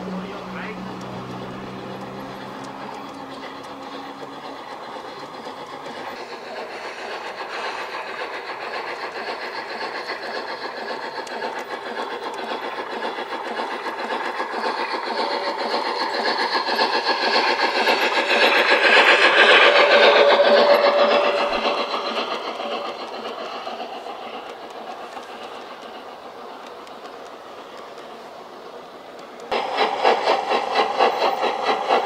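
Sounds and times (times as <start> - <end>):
model train rattling on track: 0.0 - 32.0.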